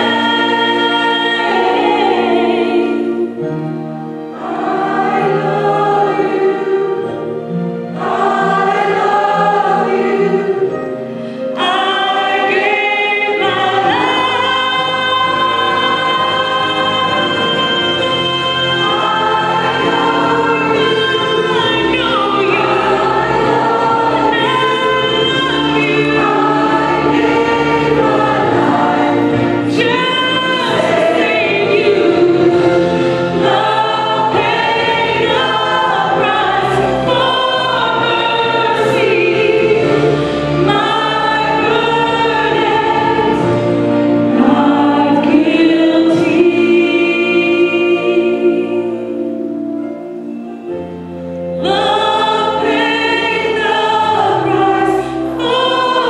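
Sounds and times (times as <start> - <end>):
choir singing: 0.0 - 56.0
woman singing gospel solo: 11.6 - 40.0.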